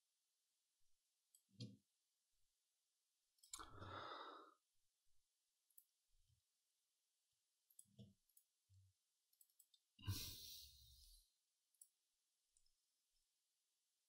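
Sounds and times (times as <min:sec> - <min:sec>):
faint breath out: 0:10.0 - 0:11.2.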